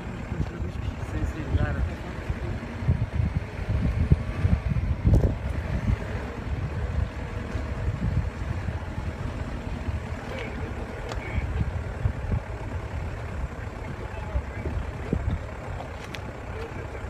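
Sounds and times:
wind on microphone: 0:00.8 - 0:10.1.

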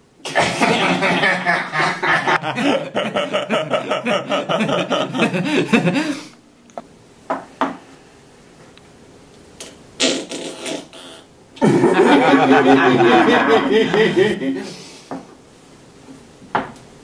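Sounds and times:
men laughing: 0:00.3 - 0:06.3, 0:11.6 - 0:14.8.

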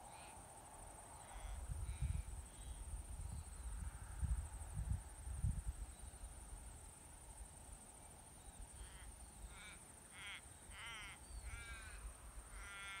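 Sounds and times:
wind rumble on microphone: 0:01.3 - 0:06.8
crow cawing: 0:08.8 - 0:13.0.

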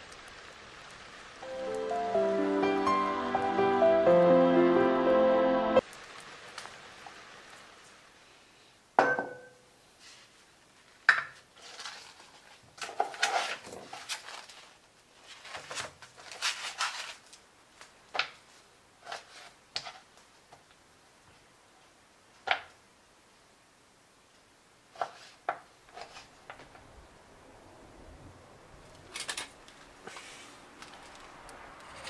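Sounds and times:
plastic wrap crinkling: 0:10.7 - 0:18.5.

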